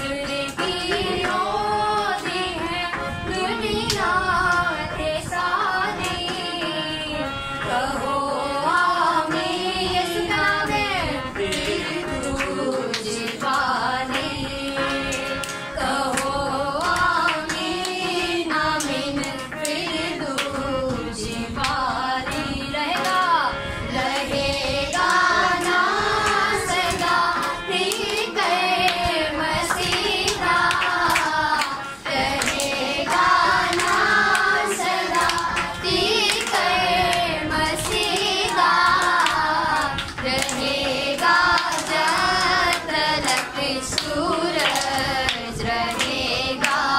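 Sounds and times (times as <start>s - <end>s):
people singing a worship song: 0.0s - 46.9s
hands clapping: 0.2s - 1.5s, 3.9s - 4.7s, 11.4s - 20.6s, 21.6s - 22.4s, 23.0s - 23.3s, 24.1s - 46.9s.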